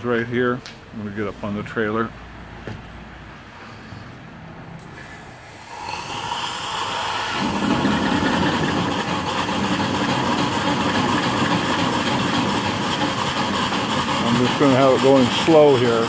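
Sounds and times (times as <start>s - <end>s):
steam engines running slowly: 4.8s - 16.0s
steam hissing: 4.9s - 16.0s.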